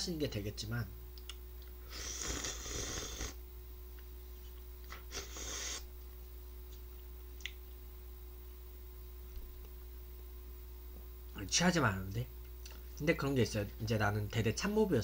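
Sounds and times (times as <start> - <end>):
person slurping noodles: 1.9 - 3.4, 5.1 - 5.9.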